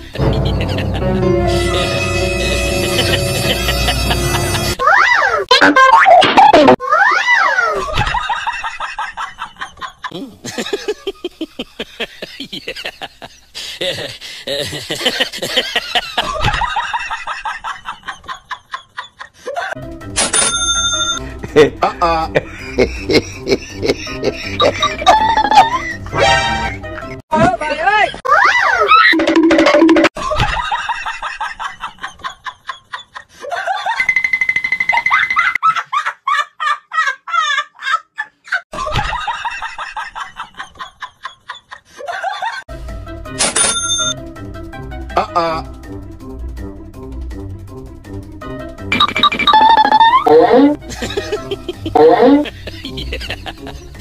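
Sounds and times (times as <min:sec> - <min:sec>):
person laughing: 0:00.0 - 0:01.9, 0:02.6 - 0:04.8, 0:09.5 - 0:19.8, 0:21.4 - 0:26.1, 0:45.1 - 0:45.6, 0:50.0 - 0:54.0
music: 0:00.0 - 0:04.8, 0:19.8 - 0:27.2, 0:42.7 - 0:54.0
music with bell-like chime: 0:01.5 - 0:04.5, 0:20.2 - 0:21.3, 0:43.4 - 0:44.2.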